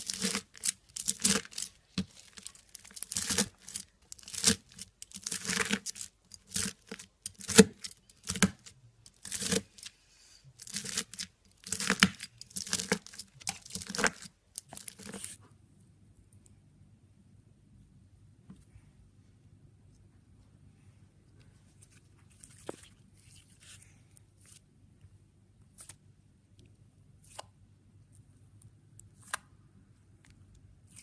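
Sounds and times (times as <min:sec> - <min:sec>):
scissors snipping crunchy slime: 0:00.0 - 0:09.9, 0:10.6 - 0:15.4.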